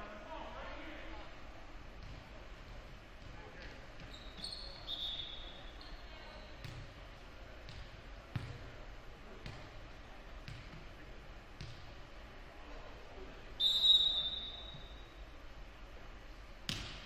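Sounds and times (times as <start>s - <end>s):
referee's whistle blast: 4.4s - 5.5s, 13.6s - 15.1s.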